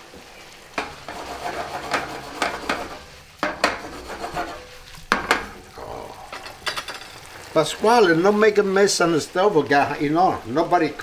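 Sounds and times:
sauce sizzling: 0.0 - 11.0
utensil scraping in pan: 0.0 - 11.0
pan and utensil knocks: 0.8 - 4.5, 5.1 - 5.6, 6.4 - 7.2.

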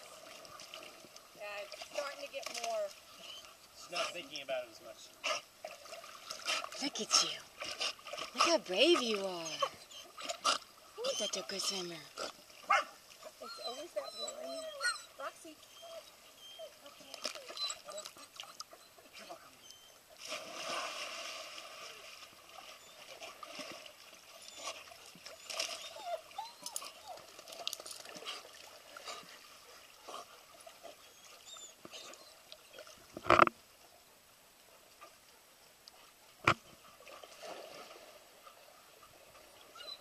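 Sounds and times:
water sloshing: 0.0 - 33.8, 36.0 - 40.0
dog splashing into pool: 20.2 - 23.9.

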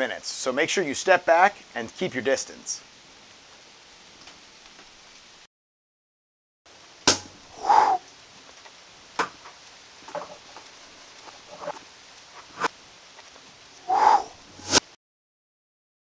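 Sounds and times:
short pitched call: 7.6 - 8.0.

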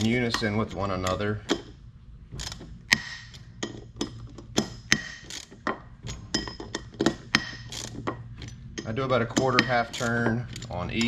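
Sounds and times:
ratchet wrench clicking on steel: 2.4 - 6.5, 7.1 - 11.0.

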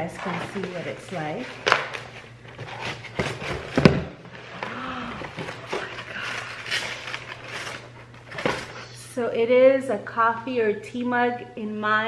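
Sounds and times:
cardboard and paper rustling: 0.0 - 8.8.

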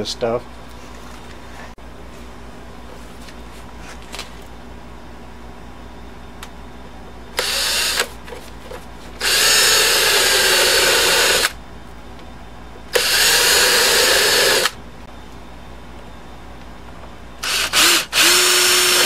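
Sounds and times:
cordless drill running: 7.4 - 8.1, 9.2 - 11.6, 13.0 - 14.8, 17.4 - 19.0.

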